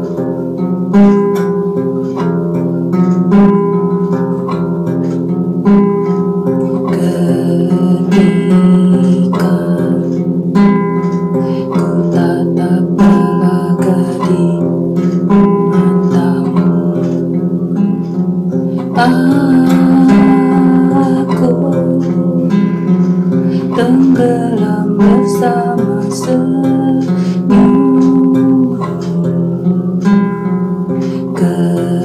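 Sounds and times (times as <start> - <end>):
acoustic guitar: 0.0 - 32.0
person singing slow song: 6.7 - 17.8, 18.7 - 30.3, 30.9 - 32.0.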